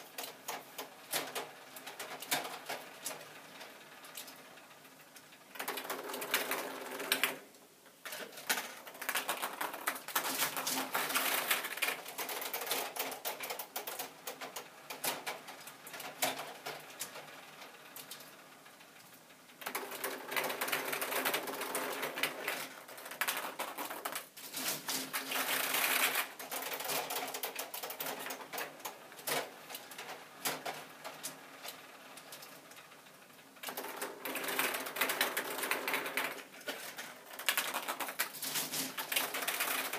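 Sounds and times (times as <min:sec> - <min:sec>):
ping-pong balls rattling: 0:33.6 - 0:39.9.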